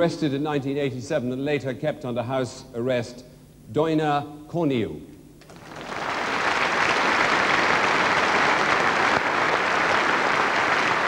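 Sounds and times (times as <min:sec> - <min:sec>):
large audience applauding: 0:05.5 - 0:11.0.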